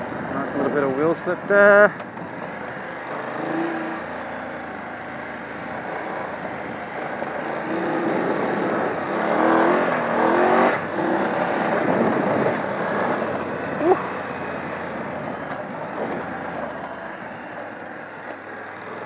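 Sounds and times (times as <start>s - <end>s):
motorcycle engine revving: 0.0s - 19.0s
tyre ground noise: 0.0s - 19.0s.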